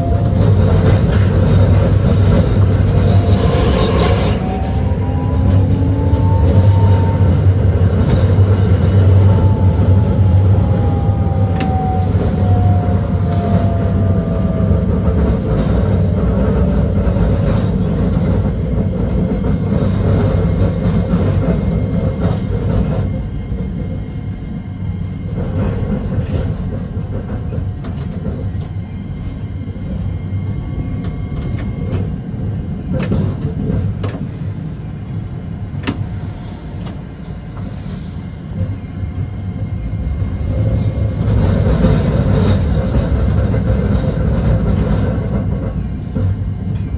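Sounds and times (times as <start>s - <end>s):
streetcar hum and whine: 0.0s - 46.9s
high wheel squeals: 24.4s - 32.3s.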